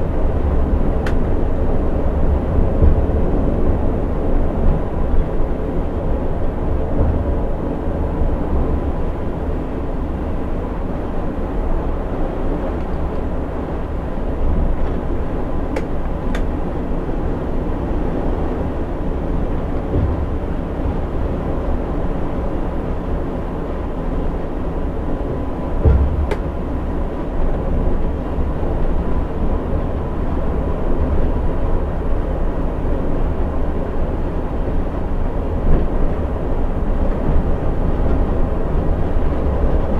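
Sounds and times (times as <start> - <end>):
coach engine and tyres droning: 0.0 - 39.9
brief thump: 25.8 - 26.4.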